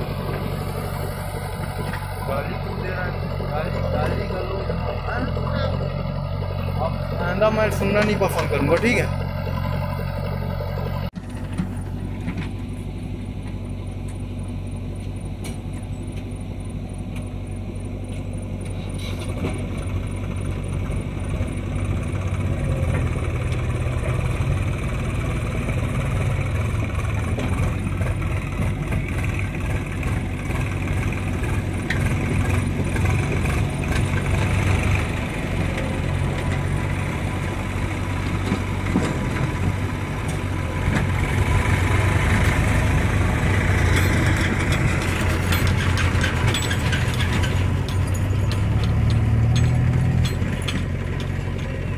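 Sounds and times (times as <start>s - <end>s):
diesel engine under load: 0.0s - 51.9s
rattling clicks: 43.9s - 51.7s.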